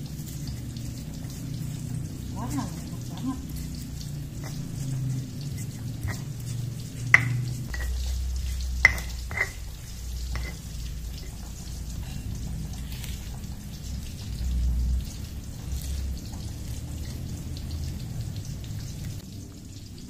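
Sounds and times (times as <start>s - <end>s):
stone pestle grinding in mortar: 2.5s - 11.8s
stone-on-stone knocks: 7.1s - 8.0s, 8.8s - 9.6s, 10.4s - 10.6s.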